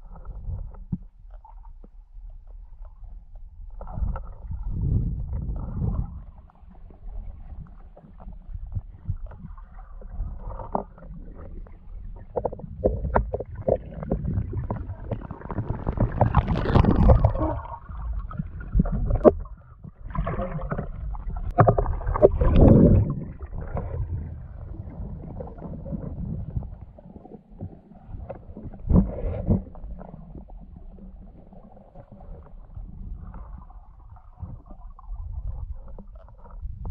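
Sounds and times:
underwater churning rumble: 0:02.0 - 0:36.9
underwater rushing swells: 0:12.4 - 0:27.2.

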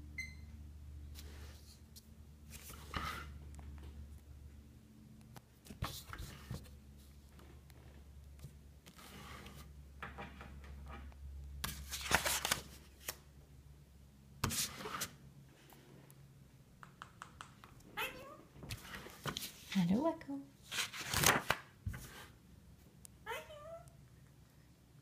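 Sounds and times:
sketchbook pages turning: 0:02.5 - 0:03.3, 0:05.6 - 0:07.8, 0:08.4 - 0:09.7, 0:11.6 - 0:13.2, 0:18.7 - 0:19.9, 0:20.6 - 0:22.4.

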